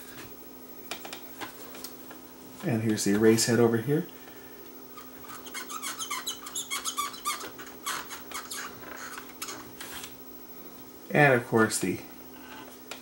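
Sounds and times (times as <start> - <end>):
cotton swab squeaking on tape head: 5.0 - 10.0.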